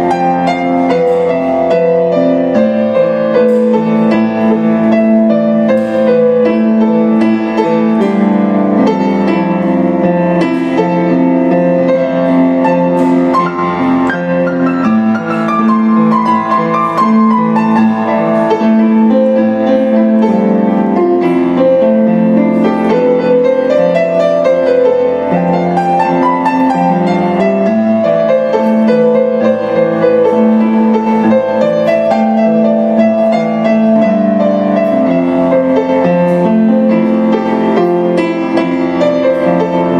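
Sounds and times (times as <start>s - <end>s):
solo piano: 0.0s - 39.9s.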